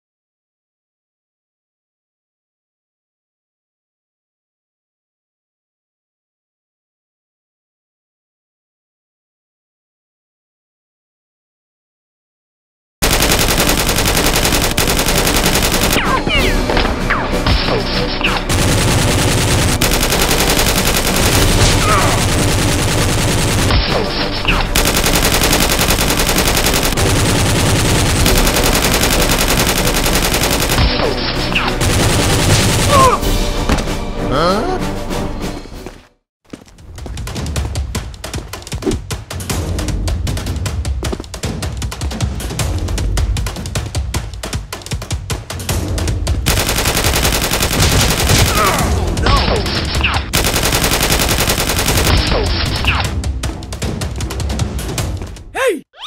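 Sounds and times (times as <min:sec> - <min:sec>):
automatic gunfire: 0:13.0 - 0:16.2, 0:18.5 - 0:31.0, 0:46.5 - 0:49.0, 0:50.3 - 0:53.0
music with drum beat: 0:37.2 - 0:46.5.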